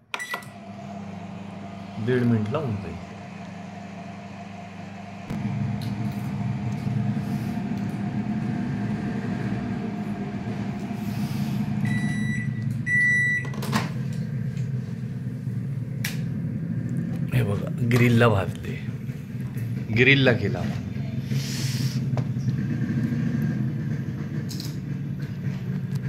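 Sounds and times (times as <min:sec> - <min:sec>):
microwave humming: 0:00.0 - 0:21.4, 0:22.0 - 0:26.0
microwave beeps: 0:00.1 - 0:00.6, 0:11.8 - 0:13.9.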